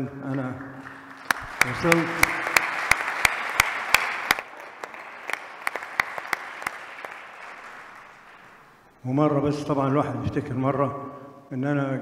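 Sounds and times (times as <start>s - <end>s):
audience applauding: 0.8s - 8.9s.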